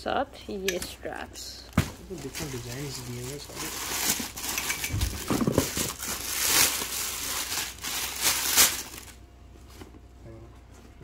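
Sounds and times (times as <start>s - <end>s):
plastic packaging crinkling: 1.8s - 9.2s.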